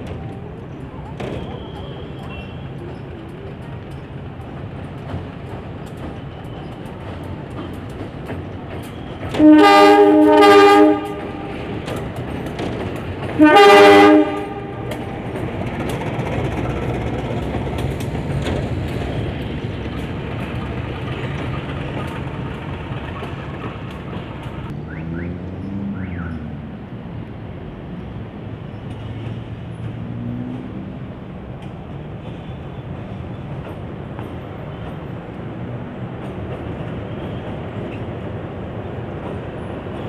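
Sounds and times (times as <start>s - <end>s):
locomotive engine rumble: 0.0s - 40.0s
wheels on rail: 0.0s - 40.0s
locomotive horn blasts: 9.3s - 11.7s, 13.4s - 15.0s.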